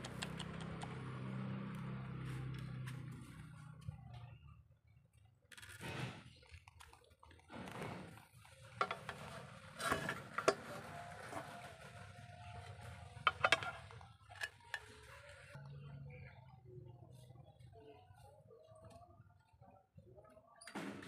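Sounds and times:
cat crunching dry kibble: 0:05.4 - 0:11.0.

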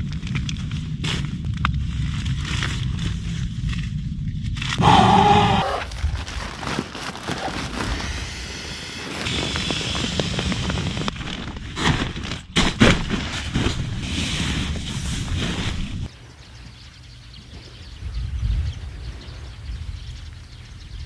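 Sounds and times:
tent fabric and gear rustling: 0:05.7 - 0:16.1.

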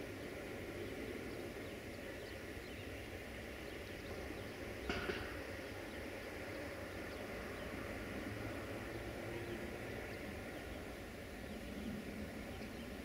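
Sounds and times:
diesel locomotive engine rumble: 0:00.0 - 0:13.0.

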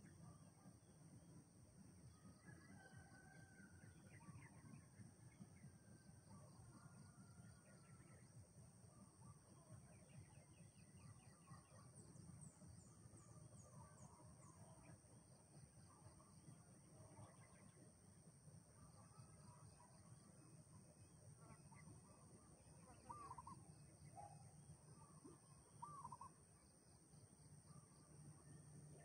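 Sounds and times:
distant bird chirps: 0:22.8 - 0:26.6.

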